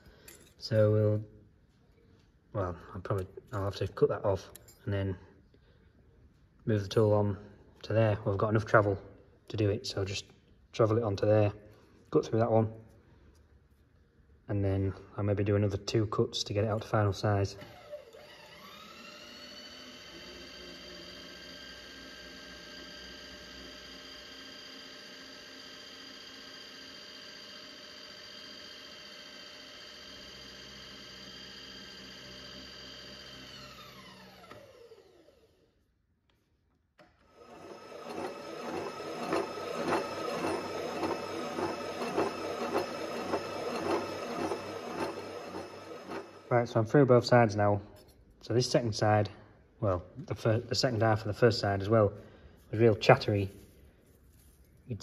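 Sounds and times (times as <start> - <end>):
electric motor whine: 17.7 - 35.5, 37.3 - 46.5.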